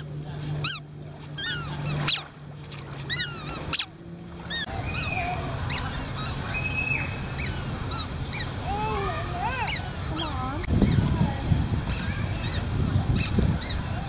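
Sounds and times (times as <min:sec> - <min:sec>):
steady background noise: 0:00.0 - 0:14.0
animal squeaky chirps: 0:01.4 - 0:02.3, 0:03.1 - 0:03.9, 0:04.5 - 0:08.6, 0:09.6 - 0:11.1, 0:11.9 - 0:14.0.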